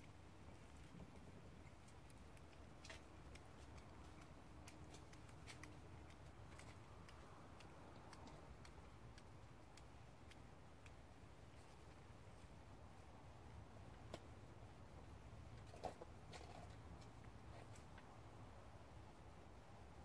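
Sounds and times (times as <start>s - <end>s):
faint crisp clicks: 0.0s - 12.5s.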